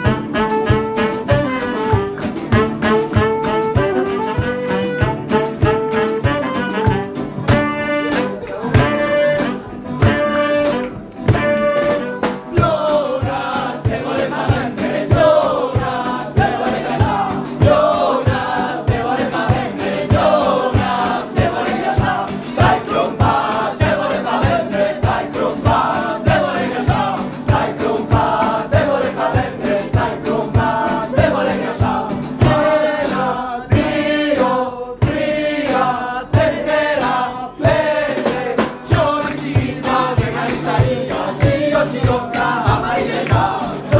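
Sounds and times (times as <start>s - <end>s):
saxophones playing held notes: 0.0s - 12.9s
men singing together over a beat: 12.3s - 43.9s.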